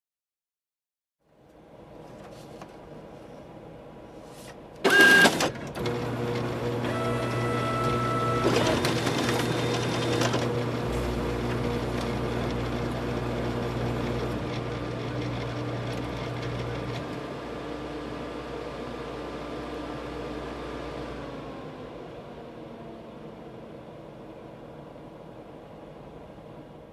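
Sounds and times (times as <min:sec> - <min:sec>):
photocopier running: 0:04.8 - 0:21.6.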